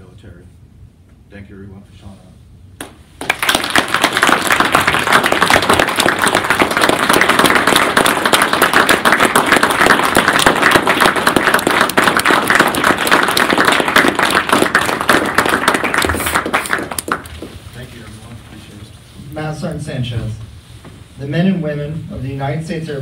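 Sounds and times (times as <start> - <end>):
person clapping close by: 2.8 - 17.5
audience applauding: 3.2 - 17.5.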